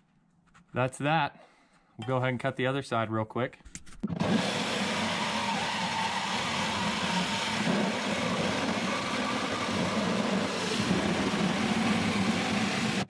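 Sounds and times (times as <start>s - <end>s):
drill hole saw cutting steel: 4.2s - 13.0s.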